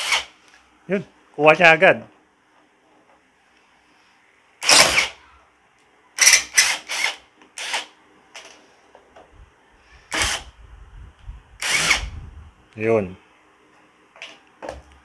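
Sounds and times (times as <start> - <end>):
impact driver bursts: 0.0 - 0.3, 4.6 - 5.2, 6.2 - 7.9, 10.1 - 10.5, 11.6 - 12.1.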